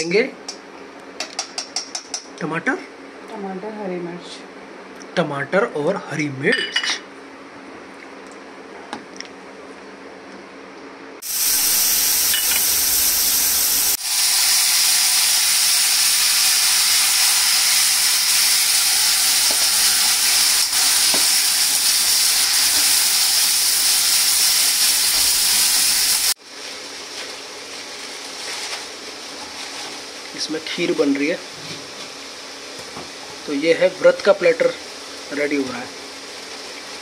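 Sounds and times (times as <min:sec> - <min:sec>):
vegetables sizzling in hot oil: 0:11.2 - 0:37.0.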